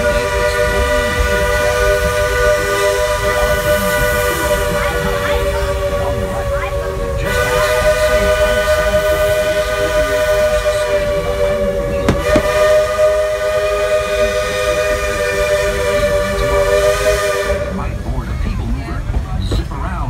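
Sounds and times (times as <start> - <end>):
low rumble of train running: 0.0 - 20.0
sharp knock: 12.1 - 12.7.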